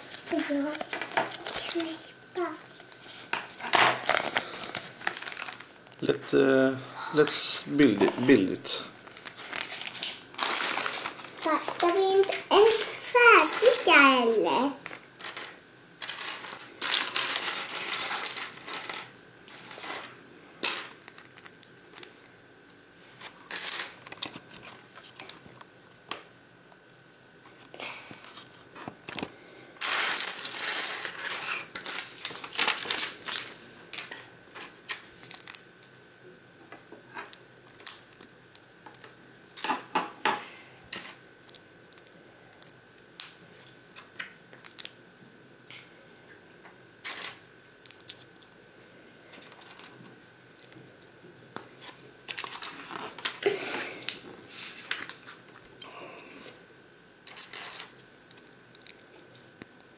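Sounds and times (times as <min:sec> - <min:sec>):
plastic bricks clattering: 0:09.4 - 0:12.0, 0:29.8 - 0:33.4.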